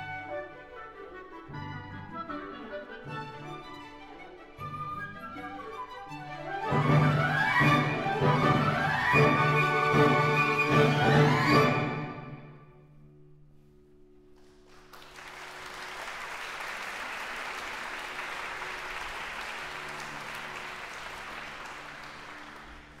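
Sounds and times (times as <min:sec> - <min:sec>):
audience applause: 0:14.4 - 0:23.0.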